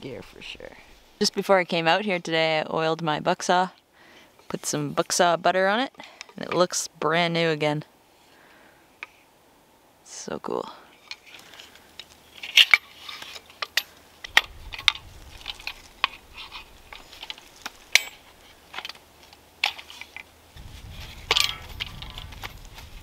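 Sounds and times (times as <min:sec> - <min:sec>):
wooden parts clacking: 0:11.0 - 0:20.3.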